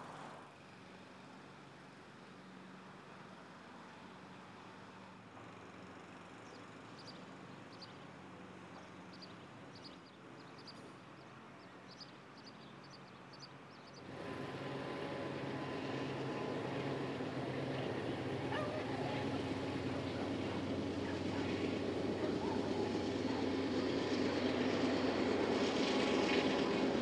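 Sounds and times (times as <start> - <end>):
small birds chirping: 6.4 - 14.1.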